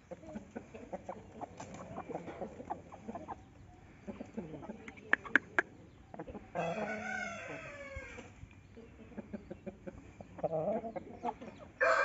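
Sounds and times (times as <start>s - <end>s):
rooster clucks: 0.0s - 8.2s
roosters crowing: 6.5s - 8.4s, 11.7s - 12.0s.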